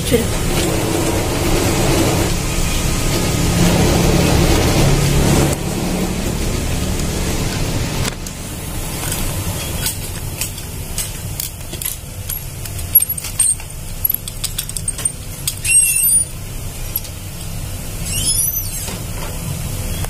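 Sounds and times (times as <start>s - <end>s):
steady low rumble: 0.0s - 15.5s
short squeak: 15.6s - 16.3s, 18.0s - 18.9s.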